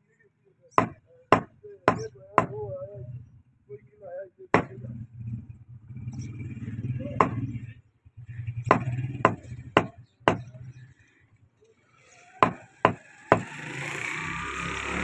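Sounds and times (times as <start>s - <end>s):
cleaver chopping meat on wood: 0.8s - 2.6s, 4.6s - 4.8s, 7.2s - 7.5s, 8.7s - 10.5s, 12.4s - 13.5s.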